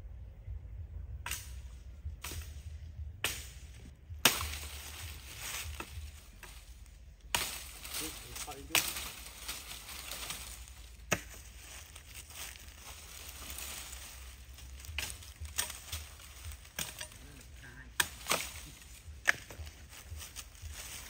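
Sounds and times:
leaf litter crackling: 4.3s - 21.0s.

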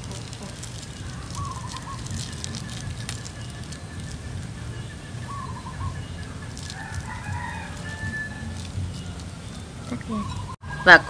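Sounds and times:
low background rumble: 0.0s - 10.6s
birds chirping: 0.0s - 11.0s
rooster crowing: 5.3s - 11.0s.

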